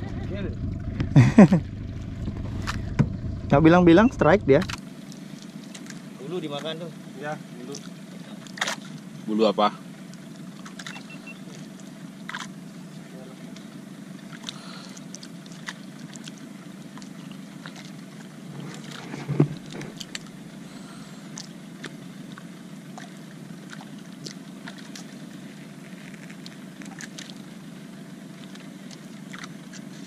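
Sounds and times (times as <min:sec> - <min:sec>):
fishing boat engine rumble: 0:00.0 - 0:30.0
loud thump: 0:02.4 - 0:03.5.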